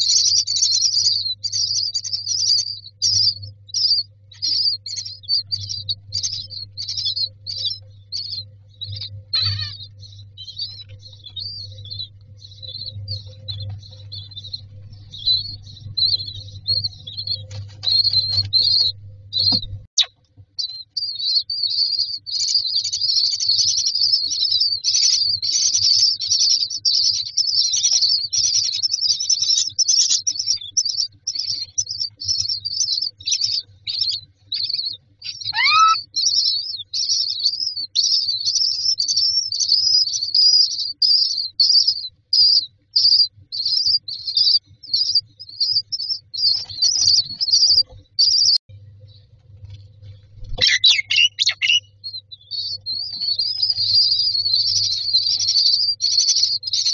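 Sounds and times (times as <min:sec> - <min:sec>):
nestlings chirping: 0:00.0 - 0:56.9
bird call sliding downward: 0:35.5 - 0:36.0.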